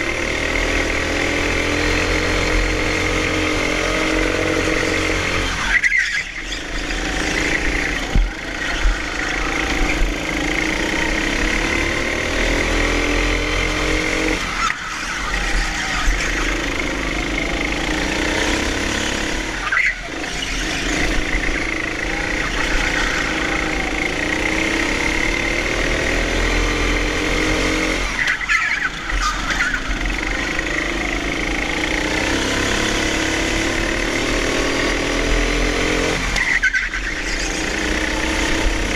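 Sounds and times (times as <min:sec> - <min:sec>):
go-kart engine revving: 0:00.0 - 0:38.9.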